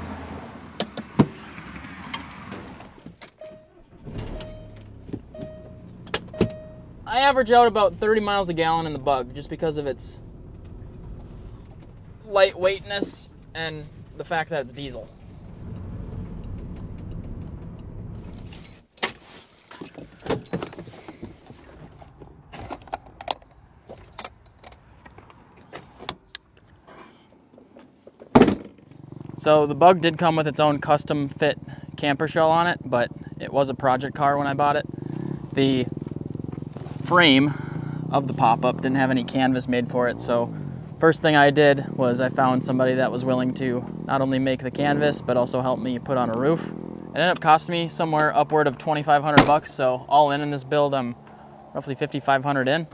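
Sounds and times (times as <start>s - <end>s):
diesel engine rumble: 0.0s - 18.9s, 28.8s - 52.9s
keys jingling: 3.0s - 7.0s, 15.4s - 21.1s
car warning chime dinging: 3.3s - 7.6s.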